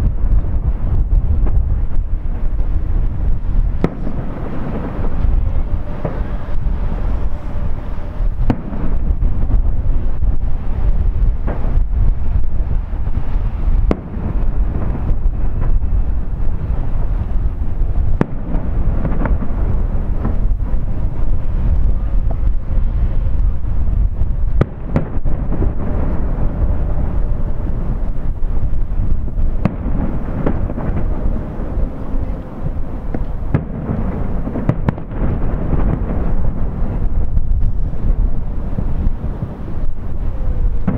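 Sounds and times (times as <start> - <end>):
distant fireworks rumble: 0.0 - 40.9
sharp firework crack: 0.0 - 40.9
wind buffeting microphone: 0.0 - 40.9.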